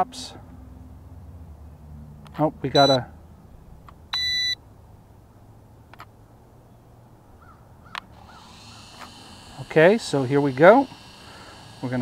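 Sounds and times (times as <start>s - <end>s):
short electronic beep: 2.8s - 3.0s, 4.2s - 4.6s.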